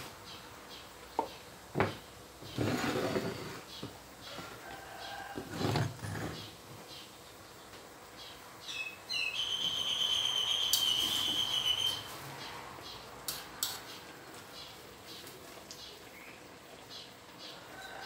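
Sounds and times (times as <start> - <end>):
bird chirping and whistling: 8.7 - 12.1.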